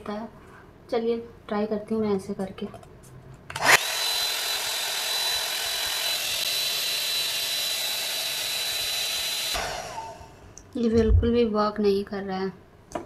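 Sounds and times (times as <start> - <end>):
hair styler fan whining: 3.5 - 10.6.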